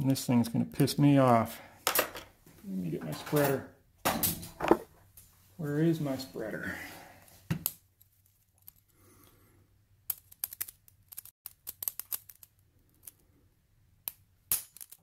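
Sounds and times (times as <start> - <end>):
sharp metallic clicks and scrapes: 10.1 - 13.2.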